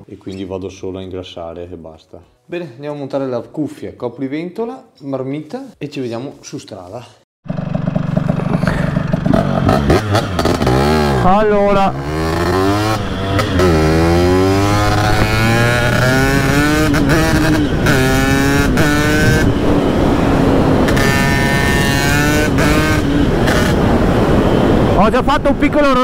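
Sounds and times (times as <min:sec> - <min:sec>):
scooter engine accelerating: 0:07.4 - 0:25.0.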